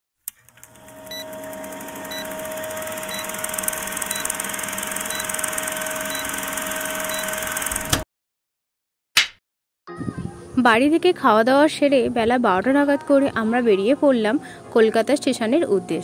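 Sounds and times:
film projector whirring: 0.3s - 8.0s
short high beeps: 3.1s - 3.4s, 4.0s - 4.4s, 5.0s - 5.4s, 6.0s - 7.5s.

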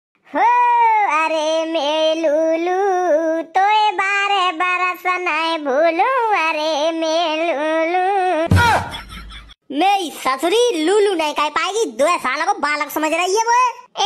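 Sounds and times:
high-pitched singing voice: 0.2s - 8.9s.

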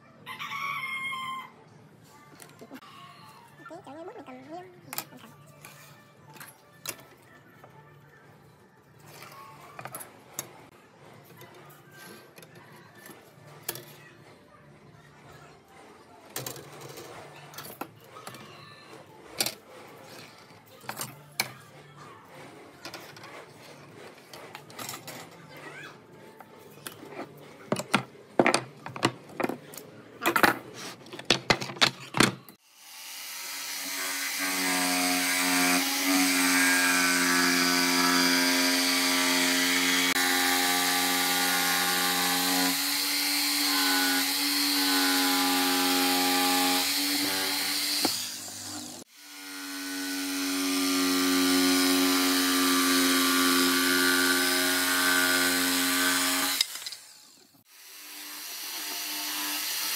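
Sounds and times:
electric jigsaw cutting wood: 32.6s - 59.9s.

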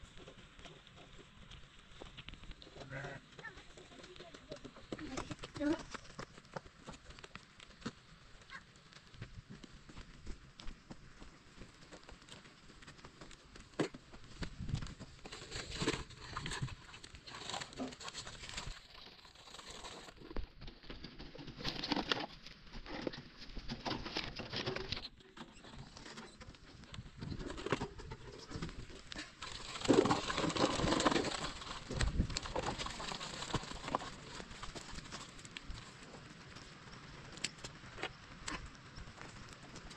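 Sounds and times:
child's footsteps on gravel: 1.9s - 18.8s
plastic toy truck scraping dirt: 14.6s - 36.7s.

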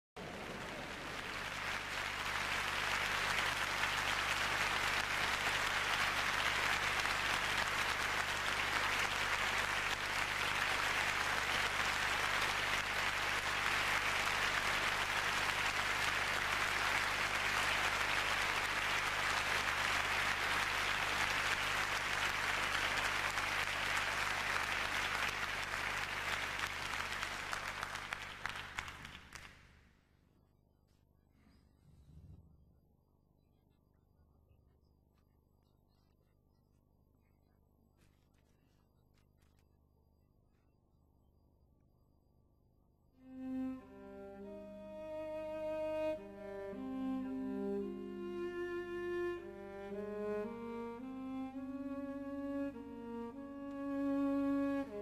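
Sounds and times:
audience applauding: 0.2s - 29.8s, 43.3s - 55.0s.

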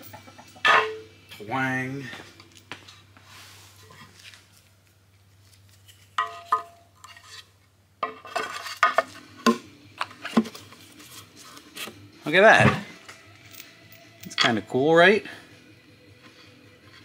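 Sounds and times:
metal parts knocking and clinking: 13.4s - 14.6s.

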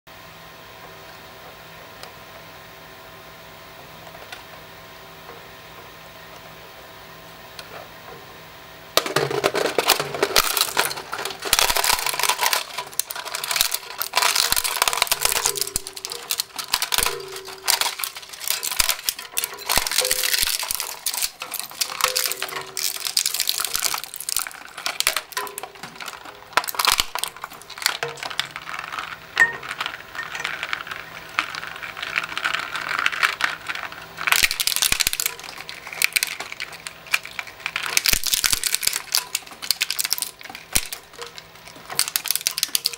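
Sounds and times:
plastic cracking and crunching: 9.0s - 42.9s
shredder humming: 9.0s - 42.9s.

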